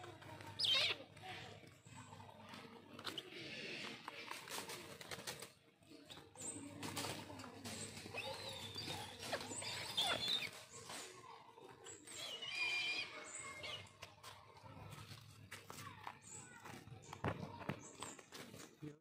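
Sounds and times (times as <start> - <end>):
wings rustling and scrabbling: 2.2 - 12.2
high wavering bird calls: 7.8 - 14.0.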